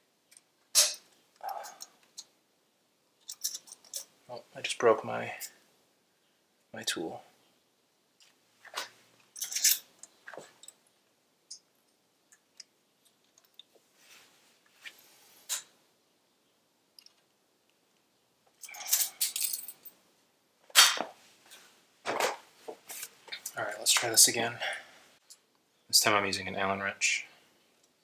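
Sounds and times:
small metal parts clinking: 3.2s - 4.1s, 9.3s - 10.8s, 18.6s - 20.0s.

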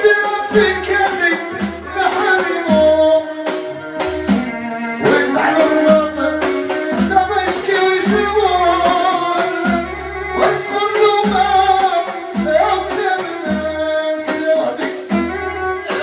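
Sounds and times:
low drum beat: 0.0s - 16.0s
person singing: 0.0s - 16.0s
string instruments melody: 0.0s - 16.0s.

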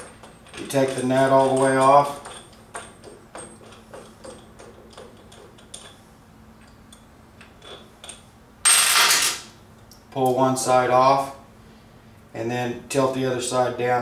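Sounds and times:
metal nut ticking and clicking: 0.0s - 6.0s.

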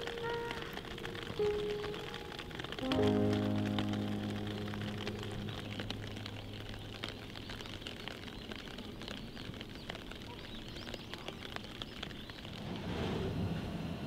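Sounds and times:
falling drops ticking: 0.0s - 12.8s
faint bird chirps: 5.2s - 12.6s.

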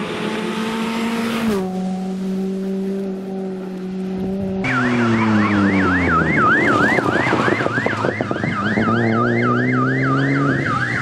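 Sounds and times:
rally car engine revving: 0.0s - 11.0s
electronic siren warbling: 4.4s - 11.0s.

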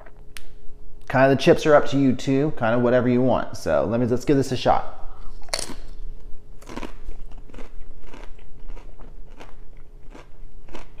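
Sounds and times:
tortilla chip crunching: 5.4s - 5.9s, 6.6s - 11.0s.

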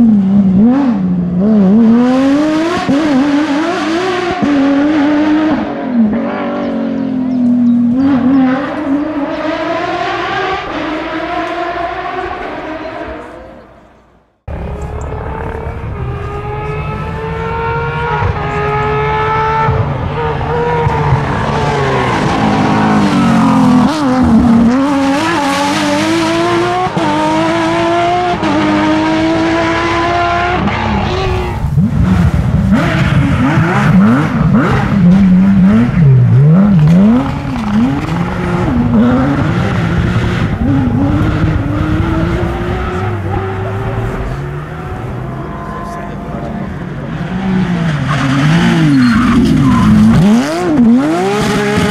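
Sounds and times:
rally car engine at full throttle: 0.0s - 51.9s.

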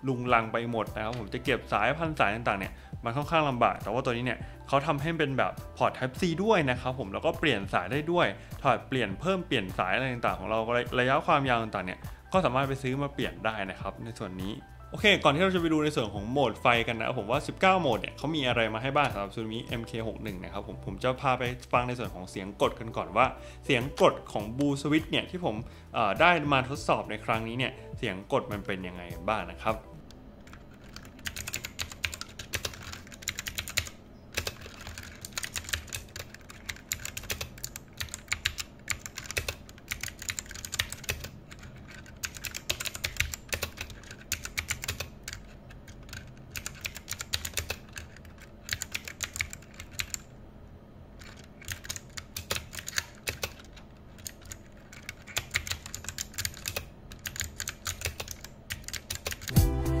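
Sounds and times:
clicky mechanical keyboard typing: 30.4s - 50.3s, 51.2s - 59.6s.

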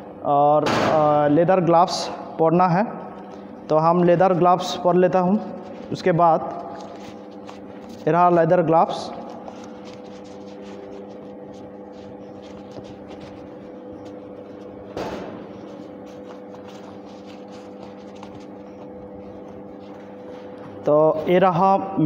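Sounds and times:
steady electrical hum: 0.0s - 22.0s
leather gloves rustling: 5.6s - 8.4s, 9.1s - 14.8s, 15.5s - 20.5s.

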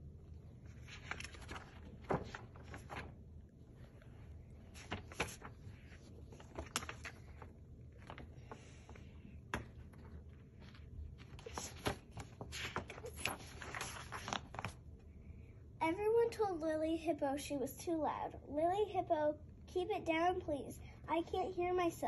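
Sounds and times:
book pages rustling and turning: 0.6s - 14.8s.

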